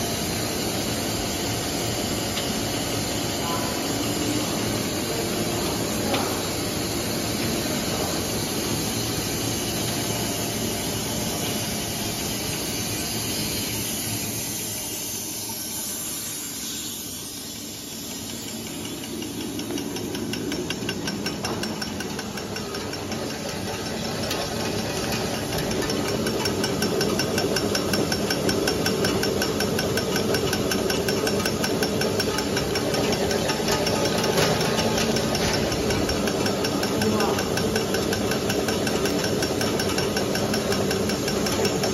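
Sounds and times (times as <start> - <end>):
machine hum and hiss: 0.0 - 41.9
fast regular cutter clicking: 18.0 - 41.9.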